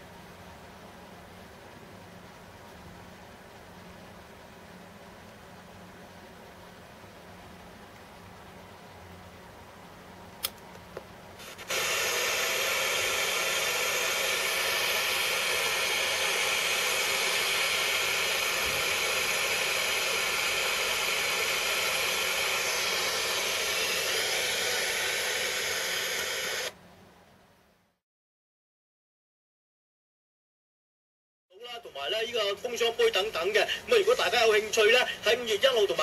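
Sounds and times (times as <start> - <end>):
radio static hiss: 11.3 - 26.8, 31.6 - 36.0.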